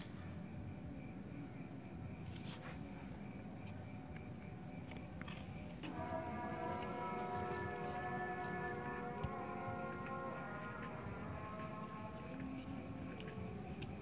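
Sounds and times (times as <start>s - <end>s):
crickets chirring: 0.0s - 14.0s
soft background music: 0.0s - 14.0s
hand sweeping soil: 2.3s - 3.3s.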